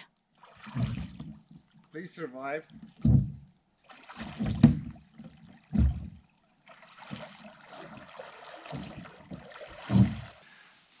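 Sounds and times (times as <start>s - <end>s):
water splashing: 0.3s - 10.5s
dull knocks: 2.9s - 3.4s, 5.7s - 6.2s.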